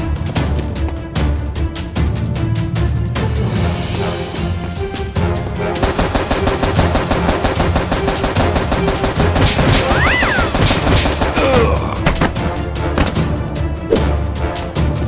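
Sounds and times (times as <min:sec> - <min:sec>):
background music: 0:00.0 - 0:15.0
rapid automatic gunfire: 0:05.8 - 0:11.7.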